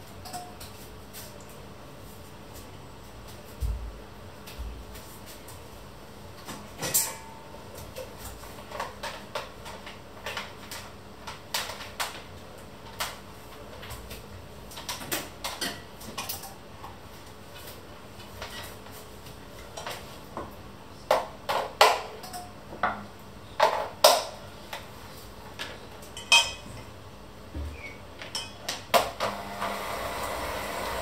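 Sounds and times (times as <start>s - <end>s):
dishes and pots clattering: 0.2s - 0.7s, 6.8s - 7.4s, 21.1s - 24.4s, 26.2s - 26.8s, 28.2s - 28.9s.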